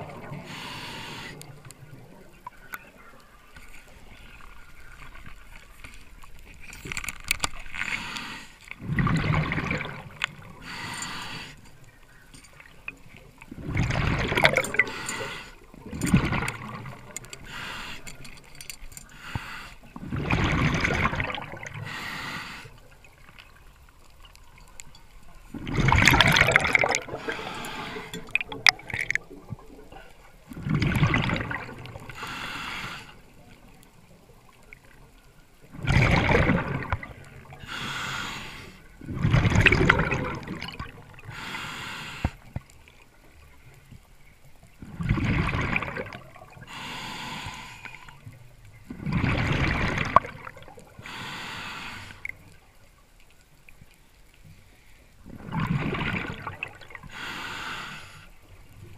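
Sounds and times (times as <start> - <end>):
gurgling exhaled bubbles: 0.0 - 2.5, 8.8 - 11.4, 13.2 - 17.8, 20.0 - 23.3, 25.3 - 32.3, 35.6 - 37.8, 39.0 - 41.4, 44.8 - 47.0, 48.8 - 51.1, 55.2 - 57.1.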